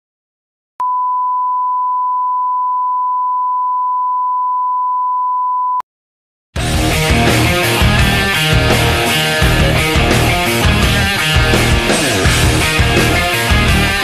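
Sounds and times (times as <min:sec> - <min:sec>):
pure test tone beep: 0:00.8 - 0:05.8.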